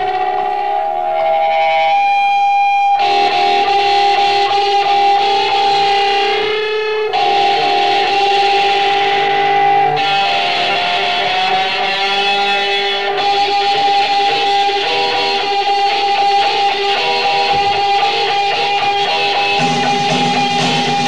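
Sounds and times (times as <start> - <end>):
droning electric guitars: 0.0 - 21.0.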